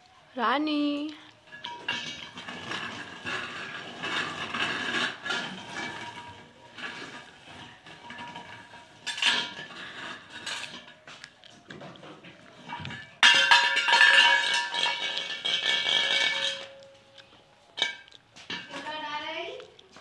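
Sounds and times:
steel bowl clattering and ringing: 12.6 - 16.9.

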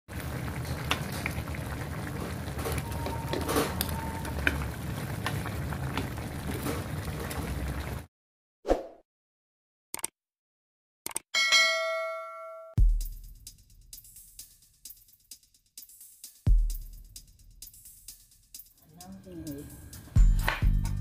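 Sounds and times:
broth bubbling in a pan: 0.1 - 8.1.

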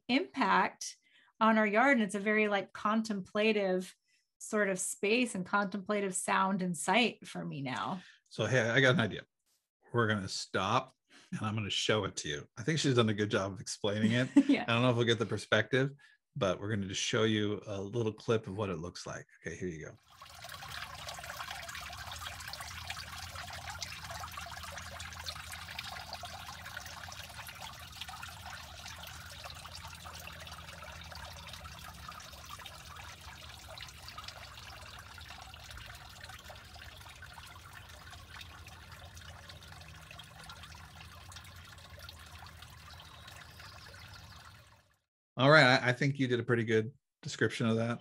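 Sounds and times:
water trickling over stones: 20.0 - 45.0.

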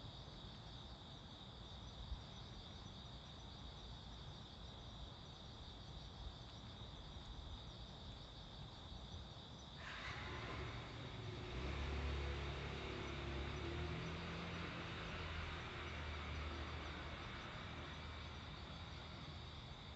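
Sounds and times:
crickets trilling: 0.0 - 19.9
approaching vehicle rushing: 9.8 - 19.7.

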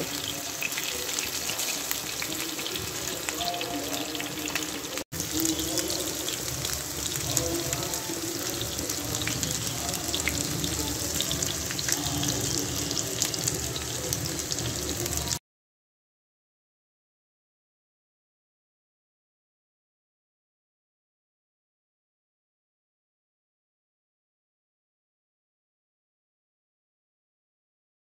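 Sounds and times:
food deep-frying in hot oil: 0.0 - 15.4.

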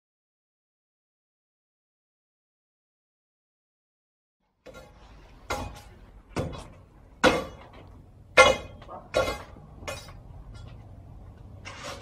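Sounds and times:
sledgehammer striking stone: 5.5 - 10.2.

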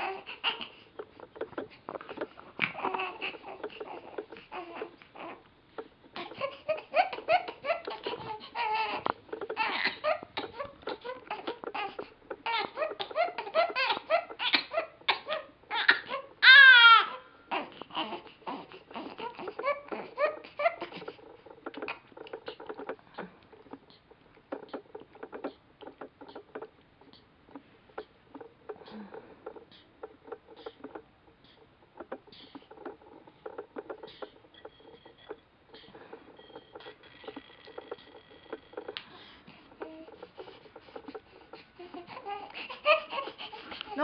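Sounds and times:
baby fussing and crying: 0.0 - 5.4, 6.1 - 35.1, 35.8 - 44.0.

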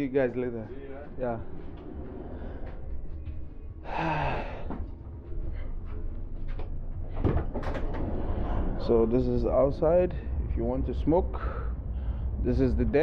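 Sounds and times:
low rumble: 0.0 - 13.0
man sighing: 3.8 - 4.8.

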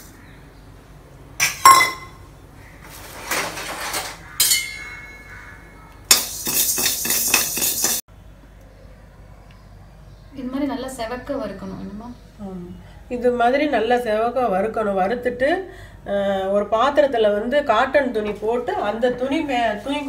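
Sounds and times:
metal spatula clinking on pan: 4.4 - 5.2, 6.1 - 8.0
spatula scraping dry grains: 6.2 - 8.0.

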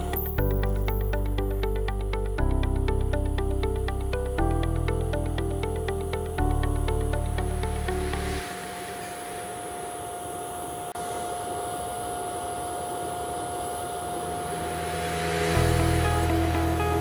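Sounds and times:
faint constant tone: 0.0 - 17.0
arc welding hiss: 7.4 - 17.0.

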